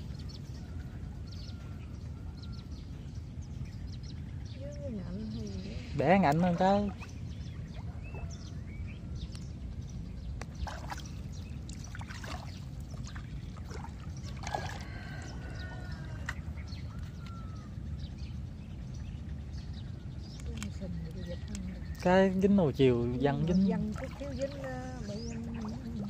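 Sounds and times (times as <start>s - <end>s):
steady low rumble: 0.0s - 26.0s
water splashing and dripping: 10.4s - 17.1s, 23.3s - 26.0s.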